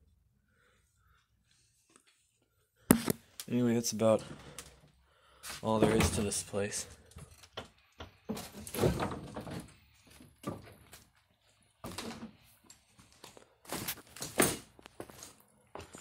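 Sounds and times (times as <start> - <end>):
footsteps on loose wooden boards: 7.2 - 11.2.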